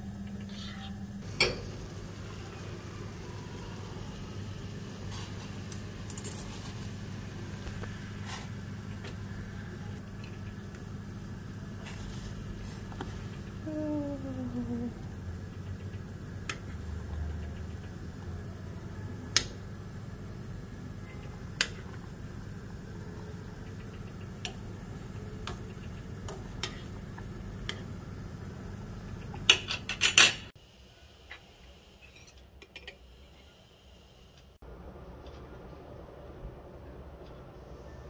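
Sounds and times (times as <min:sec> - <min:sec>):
steady low hum: 0:00.0 - 0:29.6.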